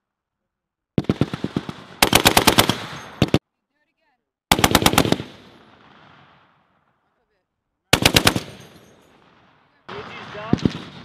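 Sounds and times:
machine gun firing bursts: 1.0 - 3.4, 4.5 - 6.1, 7.9 - 8.9.

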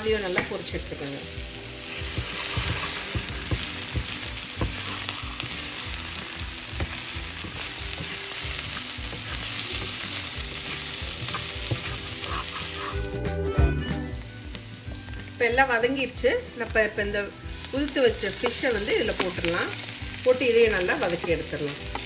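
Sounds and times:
egg sizzling in oil: 0.0 - 13.1, 17.4 - 22.0
spatula tapping and scraping pan: 1.9 - 12.6, 21.0 - 22.0.

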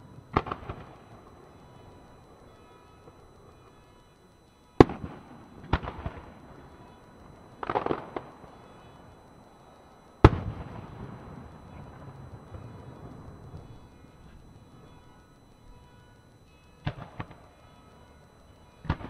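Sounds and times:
firework crackling: 0.0 - 19.0
firework shells bursting: 0.3 - 3.6, 4.8 - 8.6.

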